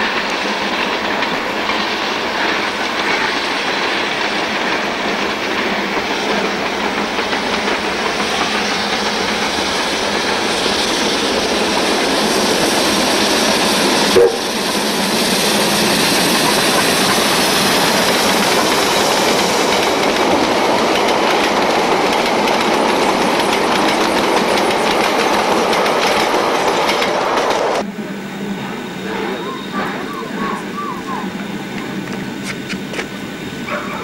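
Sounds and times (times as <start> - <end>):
carriages clattering over rail joints: 0.0 - 14.2, 15.6 - 27.8
steam train passing at speed: 0.0 - 34.0.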